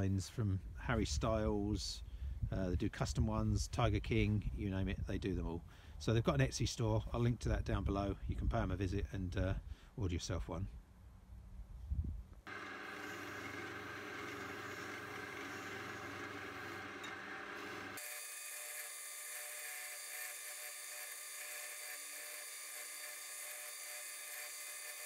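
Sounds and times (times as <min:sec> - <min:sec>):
pillar drill whirring whine: 0:12.5 - 0:25.0.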